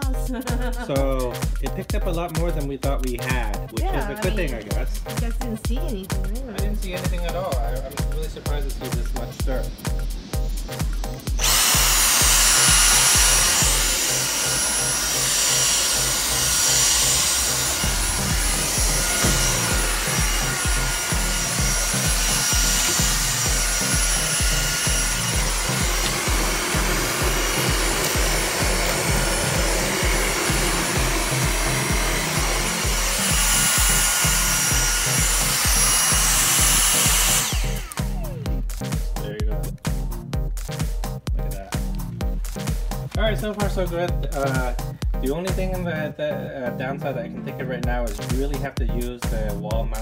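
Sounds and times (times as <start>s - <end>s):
background music with steady beat: 0.0s - 50.0s
cordless vacuum whining: 8.0s - 38.9s.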